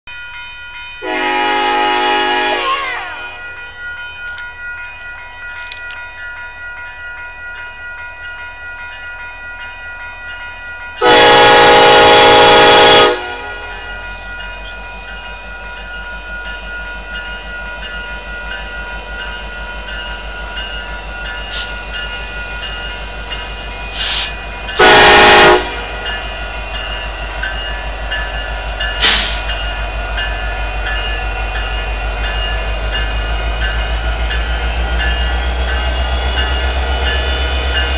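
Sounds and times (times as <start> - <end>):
crossing warning bell ringing: 0.1 - 37.9
locomotive horn blasts: 1.0 - 3.3, 11.0 - 13.7, 24.8 - 25.9
locomotive engine rumble: 11.1 - 37.9.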